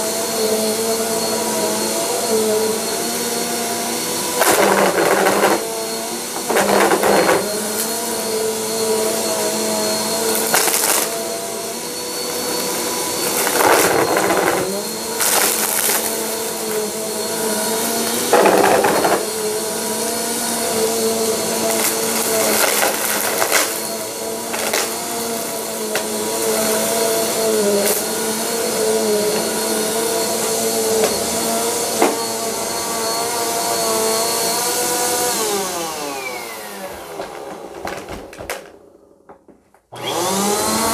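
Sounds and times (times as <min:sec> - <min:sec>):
vacuum cleaner motor whine: 0:00.0 - 0:40.9
debris rattling in vacuum: 0:12.2 - 0:19.5, 0:21.4 - 0:27.0.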